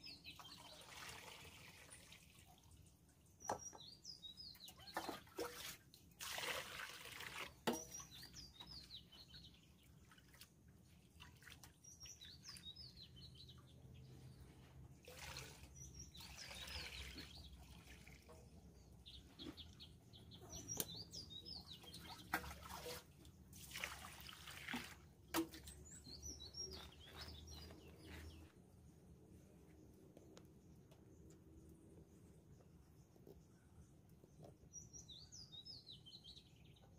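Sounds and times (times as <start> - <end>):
small birds chirping: 0.0 - 1.0, 1.9 - 5.7, 7.3 - 23.5, 25.5 - 36.9
water pouring and sloshing in metal pots: 0.0 - 28.4.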